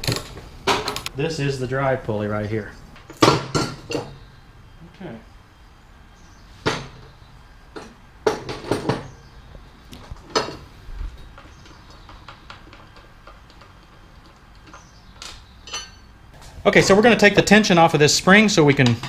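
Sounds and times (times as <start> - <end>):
metal tools clinking on metal: 11.3 - 16.2.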